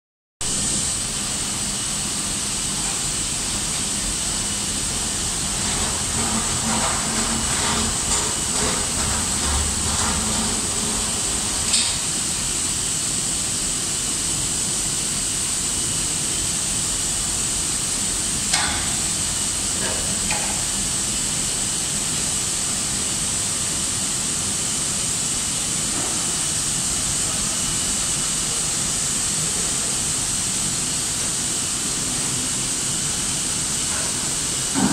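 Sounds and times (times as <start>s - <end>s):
factory machinery hum: 0.4s - 34.9s.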